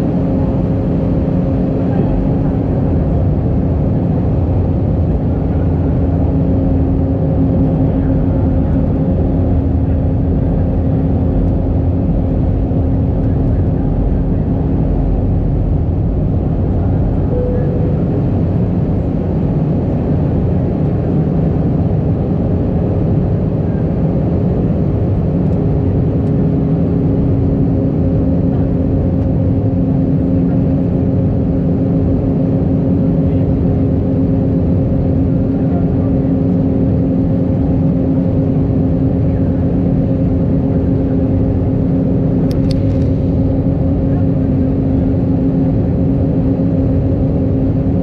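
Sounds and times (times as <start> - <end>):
low steady hum: 0.0 - 20.7
aircraft cabin rumble: 0.0 - 48.0.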